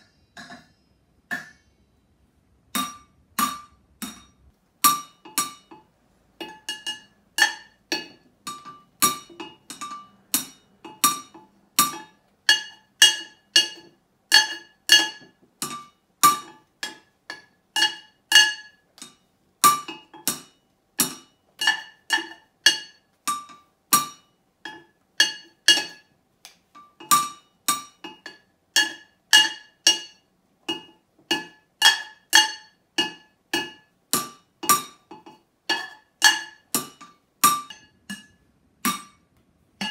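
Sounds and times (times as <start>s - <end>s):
drumsticks clanking on metal pots: 2.7s - 39.9s.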